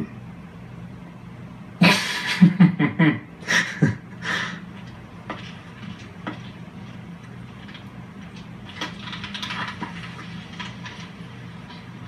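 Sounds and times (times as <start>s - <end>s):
steady low hum: 0.0s - 12.0s
faint clicks and rustles: 4.7s - 12.0s.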